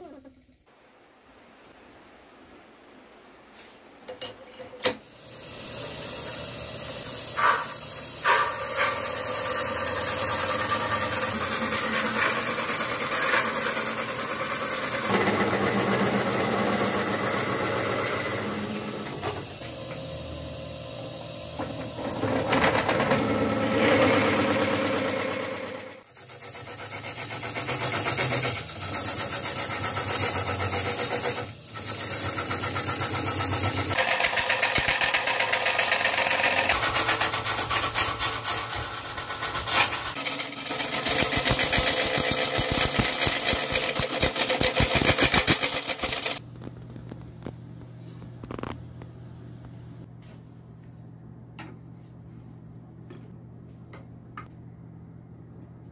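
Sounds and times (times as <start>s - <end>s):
wood lathe running: 5.4s - 46.4s
turning tool scraping wood: 7.3s - 19.0s.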